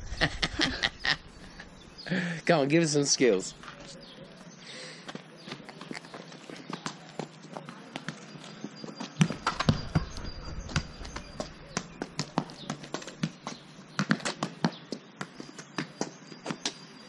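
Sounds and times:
low microphone rumble: 0.0 - 2.0
scuffing footsteps: 3.6 - 16.8
football kicked on pavement: 9.2 - 16.8.

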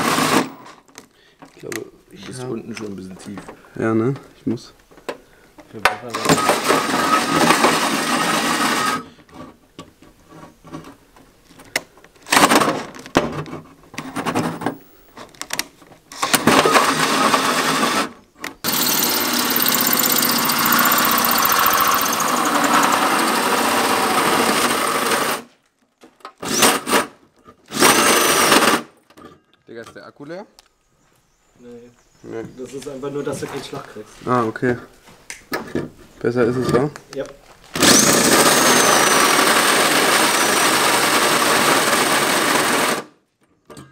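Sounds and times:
drill cutting through sheet steel: 18.7 - 25.4, 27.8 - 28.6, 37.8 - 43.0.

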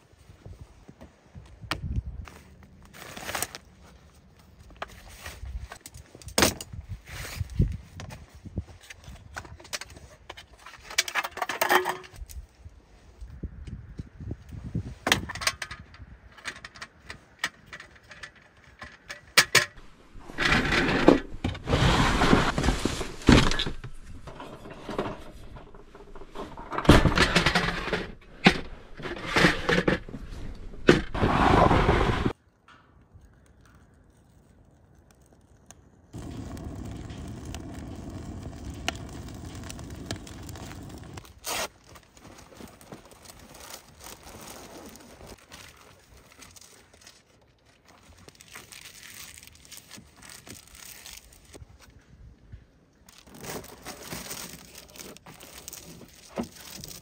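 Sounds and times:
scraping and clattering handling: 16.4 - 32.3.

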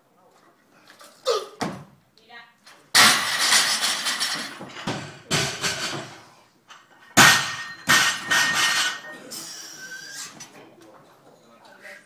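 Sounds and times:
barbell plates clanging: 3.0 - 9.2.

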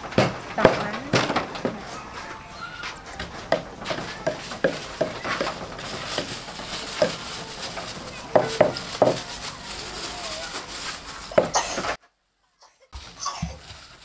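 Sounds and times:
wooden pestle pounding mortar: 0.0 - 1.8, 3.2 - 9.4.

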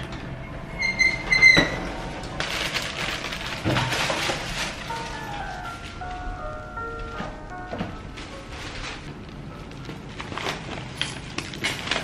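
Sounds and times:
lift doors sliding open: 0.0 - 2.4
shuffling and rustling: 2.3 - 12.0.

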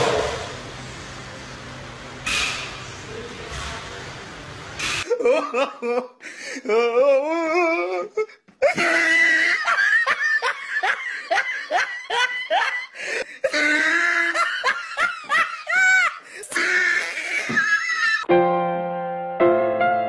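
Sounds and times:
person laughing hard: 5.0 - 18.3
piano music: 18.3 - 20.0.

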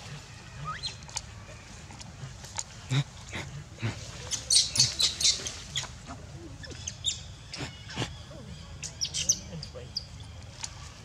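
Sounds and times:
animal chirps and squeaks: 4.3 - 5.9, 6.6 - 10.1.

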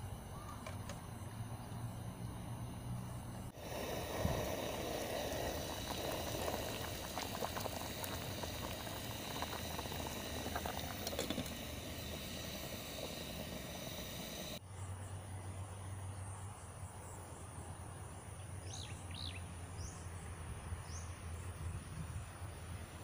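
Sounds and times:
water boiling in a pot: 3.5 - 14.6.

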